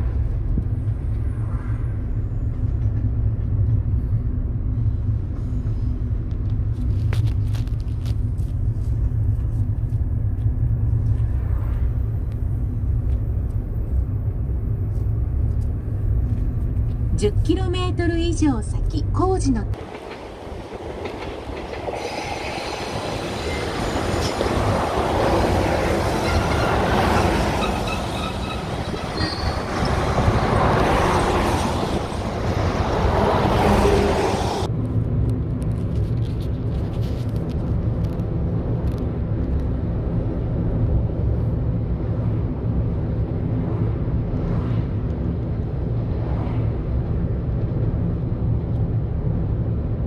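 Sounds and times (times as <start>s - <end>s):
low vehicle drone: 0.0s - 22.1s, 27.9s - 50.0s
diesel railcar passing: 0.0s - 50.0s
wheel squeal: 26.2s - 30.1s.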